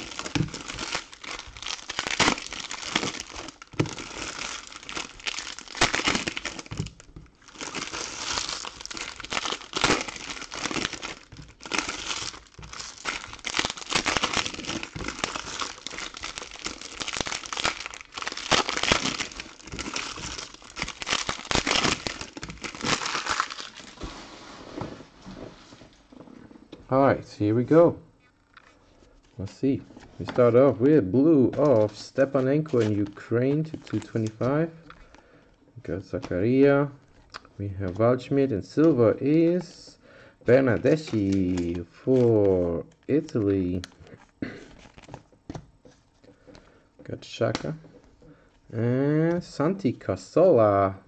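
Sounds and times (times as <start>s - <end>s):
foil wrappers crinkling: 0.0s - 24.1s, 31.3s - 35.2s, 40.6s - 46.7s.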